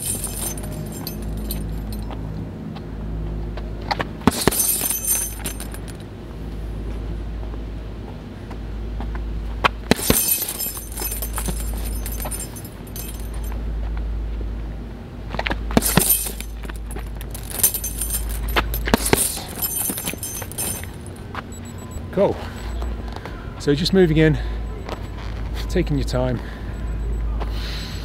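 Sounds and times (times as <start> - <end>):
chains jangling: 0.0 - 2.1, 4.3 - 6.0, 9.9 - 13.6, 15.8 - 21.7.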